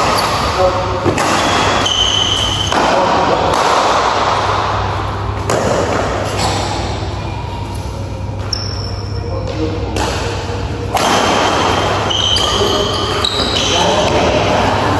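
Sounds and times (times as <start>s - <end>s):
racket striking shuttlecock: 0.0s - 4.4s, 5.4s - 6.9s, 9.9s - 12.0s
shoes squeaking on court floor: 7.6s - 9.6s, 11.6s - 14.4s.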